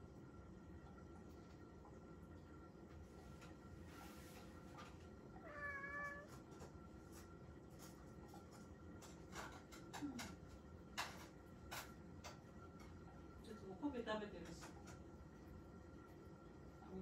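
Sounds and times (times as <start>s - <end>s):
cat meowing: 5.4s - 6.4s.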